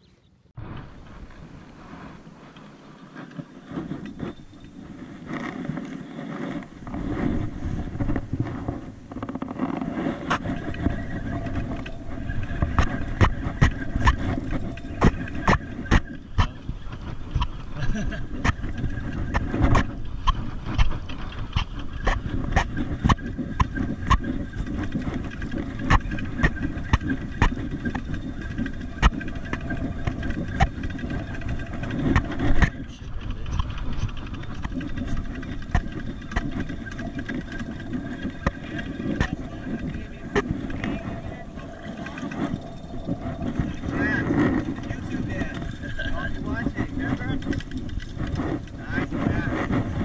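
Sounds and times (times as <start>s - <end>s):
handling noise on camera: 0.6s - 50.0s.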